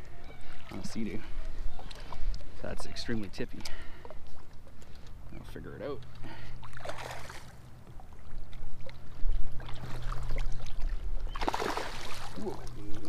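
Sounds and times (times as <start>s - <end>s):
fish splashing at water surface: 6.6s - 7.6s, 9.6s - 12.8s.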